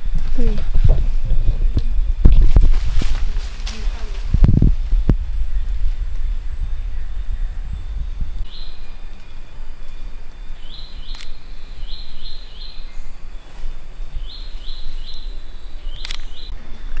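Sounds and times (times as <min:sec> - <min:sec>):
low microphone rumble: 0:00.0 - 0:17.0
camera shutter click: 0:11.1 - 0:11.4, 0:16.0 - 0:16.4.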